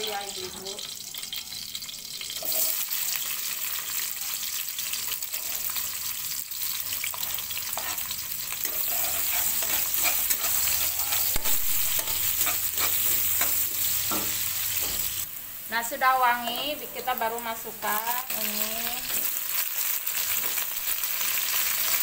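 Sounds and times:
onions sizzling in hot oil: 0:00.0 - 0:22.0
spatula scraping a pan: 0:07.1 - 0:15.2.

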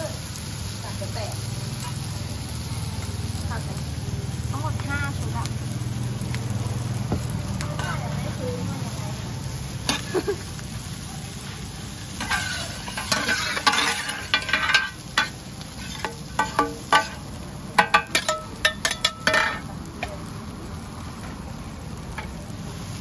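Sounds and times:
frying sizzle: 0:00.0 - 0:23.0
metal spatulas clanking on pan: 0:07.7 - 0:08.1, 0:09.8 - 0:10.2, 0:12.2 - 0:20.2, 0:22.1 - 0:22.4.

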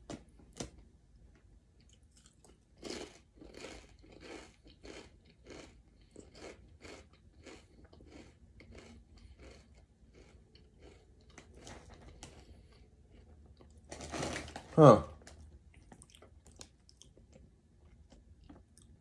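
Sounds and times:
potato chip crunching: 0:01.8 - 0:12.4.

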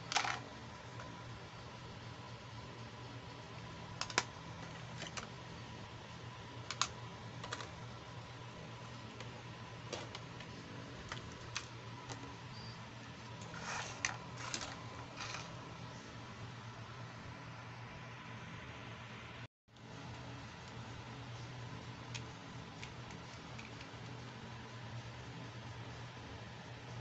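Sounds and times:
faint steady hum: 0:00.0 - 0:27.0
plastic pieces clicking and tapping: 0:04.0 - 0:05.3, 0:06.6 - 0:07.8.

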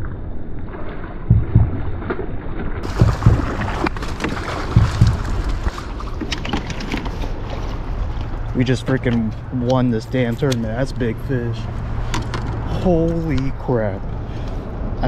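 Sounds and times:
water splashing and sloshing: 0:00.0 - 0:15.0
low thumps: 0:01.2 - 0:06.4.

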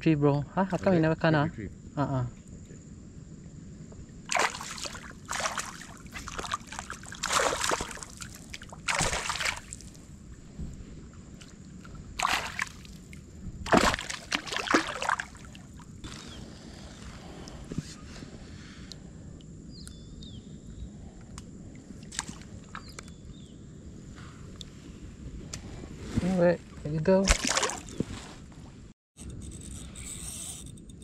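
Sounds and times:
fish splashing at surface: 0:04.3 - 0:10.0, 0:12.2 - 0:13.1, 0:13.7 - 0:15.8, 0:27.3 - 0:28.0.

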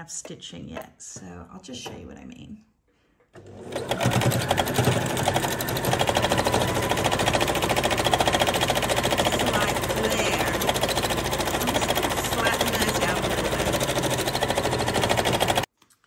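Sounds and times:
sewing machine running: 0:03.4 - 0:15.7.

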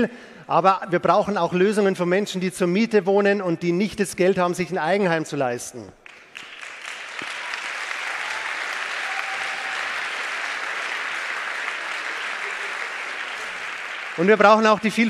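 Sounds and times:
large audience applauding: 0:06.0 - 0:15.0.

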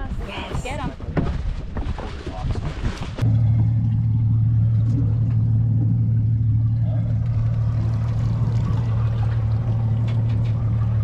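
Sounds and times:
outboard motor idling: 0:03.2 - 0:11.0.

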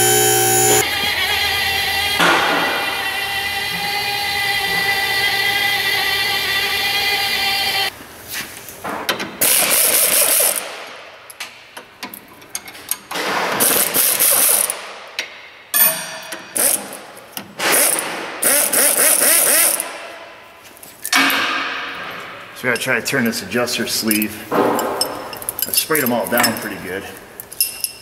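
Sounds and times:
ratchet wrench clicking: 0:16.6 - 0:17.0, 0:17.7 - 0:19.9.

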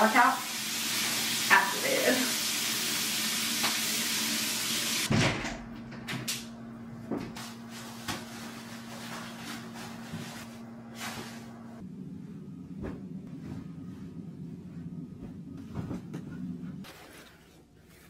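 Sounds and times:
shower spray hissing: 0:00.0 - 0:05.1
low steady hum: 0:05.2 - 0:18.0.

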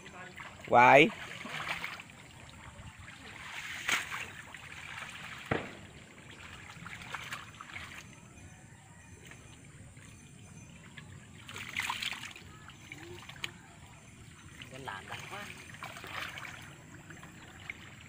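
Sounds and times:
water trickling: 0:00.0 - 0:18.0
hands splashing in shallow water: 0:03.1 - 0:08.0.

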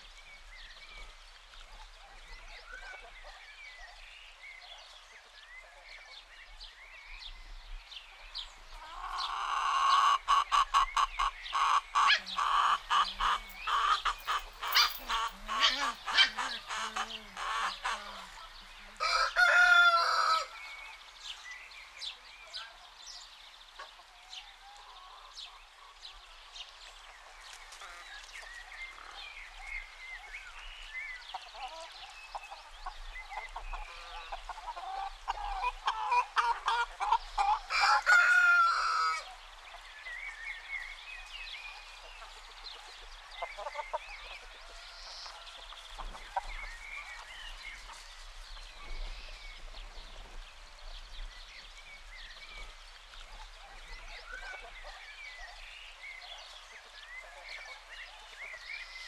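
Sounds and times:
small birds chirping: 0:00.0 - 0:19.1
chickens clucking: 0:08.7 - 0:20.5, 0:30.6 - 0:39.8, 0:41.2 - 0:50.5
rooster crowing: 0:19.0 - 0:20.5.

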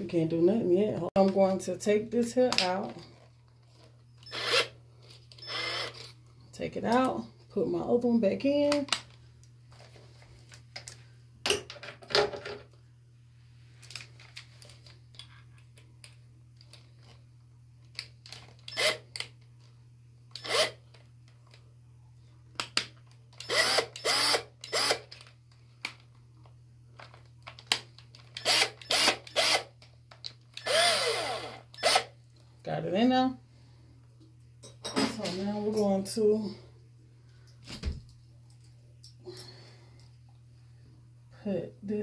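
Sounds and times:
cordless drill whirring: 0:04.2 - 0:06.1, 0:18.7 - 0:19.0, 0:20.4 - 0:20.8, 0:23.4 - 0:25.1, 0:28.4 - 0:29.7, 0:30.6 - 0:32.1.

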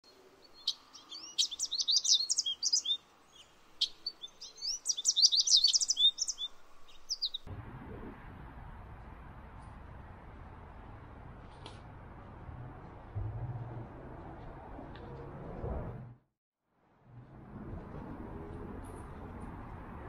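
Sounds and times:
songbird chirping and trilling: 0:00.1 - 0:07.5
outdoor background hiss: 0:00.1 - 0:14.2.

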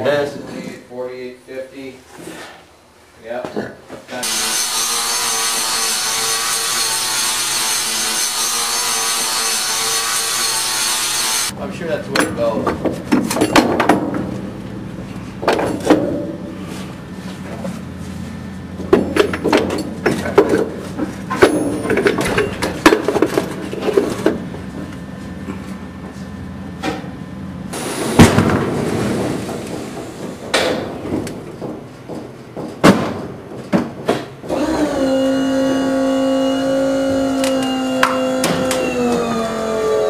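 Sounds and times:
steady low hum: 0:00.0 - 0:34.6
metal tools clanking: 0:12.1 - 0:14.2, 0:18.8 - 0:24.4.

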